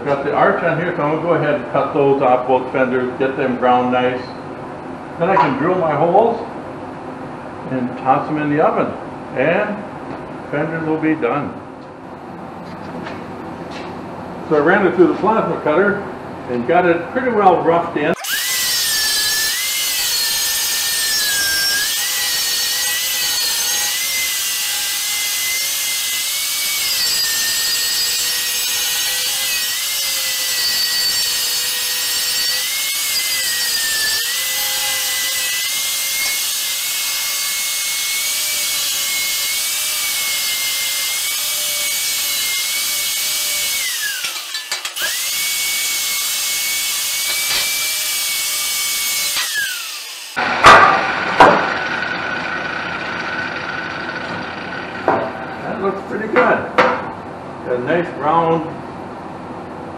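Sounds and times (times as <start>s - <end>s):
angle grinder cutting steel: 18.2s - 54.4s.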